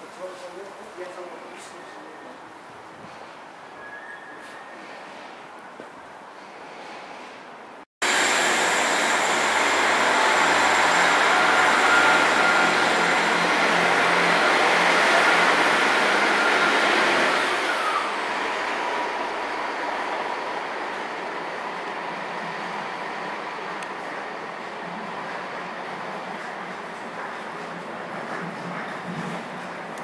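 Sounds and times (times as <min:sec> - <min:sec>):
train rushing past: 0:08.0 - 0:30.0.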